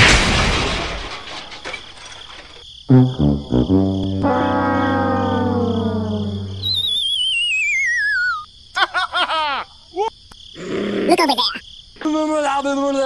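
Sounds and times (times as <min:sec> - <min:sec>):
whistle sliding down in pitch: 0:04.7 - 0:08.4
squeaky chirps: 0:05.1 - 0:08.5, 0:11.1 - 0:11.6.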